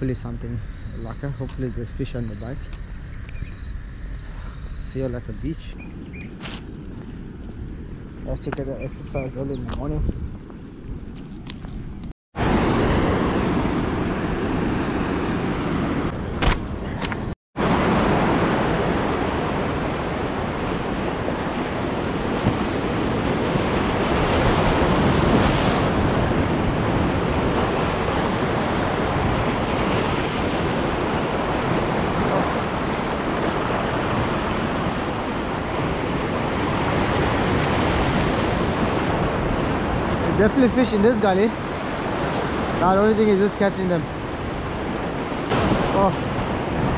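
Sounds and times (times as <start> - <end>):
ocean waves breaking on rocks: 17.6 - 46.9.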